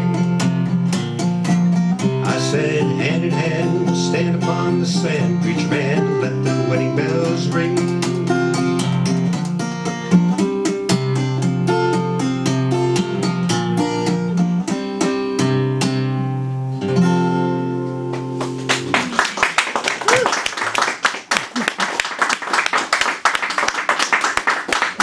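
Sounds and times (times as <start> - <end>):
acoustic guitar playing: 0.0 - 19.5
audience applause: 18.4 - 25.0.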